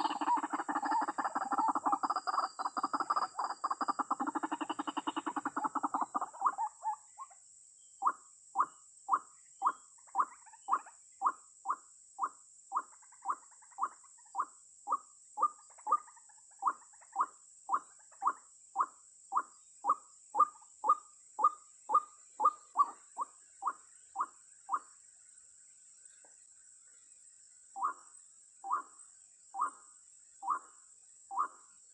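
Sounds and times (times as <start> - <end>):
waterhen calling: 0.0 - 6.9, 20.4 - 24.8.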